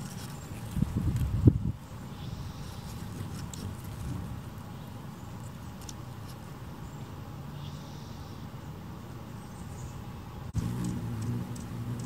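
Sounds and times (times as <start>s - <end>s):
hummingbird chip notes: 10.6s - 12.0s.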